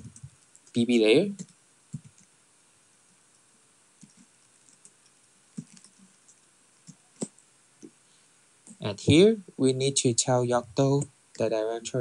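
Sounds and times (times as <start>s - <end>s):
keyboard typing: 0.0s - 2.3s, 4.0s - 7.4s.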